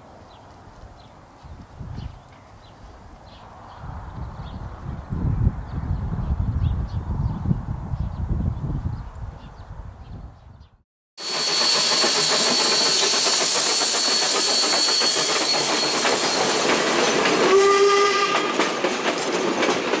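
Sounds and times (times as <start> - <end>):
steam whistle blast: 11.2 - 16.8, 17.4 - 18.5
steam locomotive hiss and clatter: 11.2 - 20.0.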